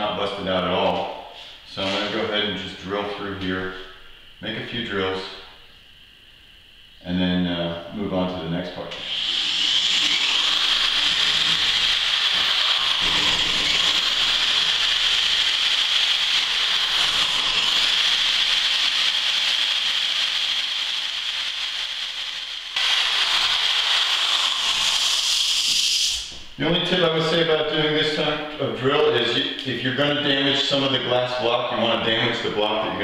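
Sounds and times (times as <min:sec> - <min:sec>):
electric drill drilling glass: 0:08.9 - 0:26.3.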